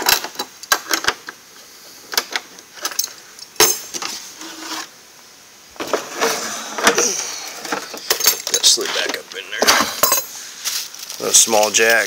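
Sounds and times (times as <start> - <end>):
tools clattering: 0.0 - 1.4, 2.1 - 4.9, 5.8 - 10.8
tools clicking and clinking: 2.1 - 4.1, 7.6 - 8.8.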